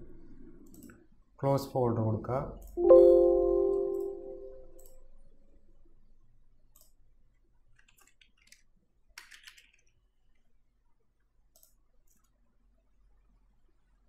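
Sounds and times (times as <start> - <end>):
computer mouse clicks: 0.6 - 1.1, 4.7 - 5.0, 6.7 - 10.4, 11.5 - 12.4
keyboard keystrokes: 9.2 - 9.9.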